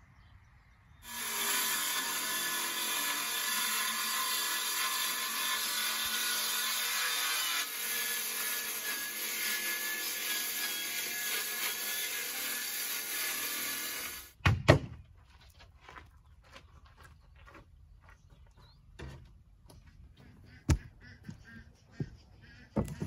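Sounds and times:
circular saw cutting plywood: 1.0 - 14.3.

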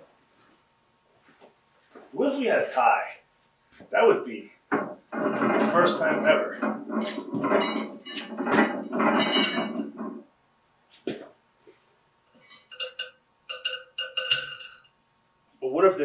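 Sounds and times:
steel weight plates clinking: 6.8 - 10.2, 12.4 - 14.9.

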